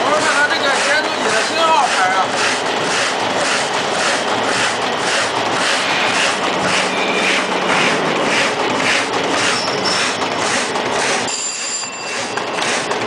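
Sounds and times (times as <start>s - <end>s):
paper cutter clattering rhythmically: 0.0s - 13.0s
thin high whine: 5.8s - 8.6s, 9.2s - 10.4s, 11.3s - 12.6s.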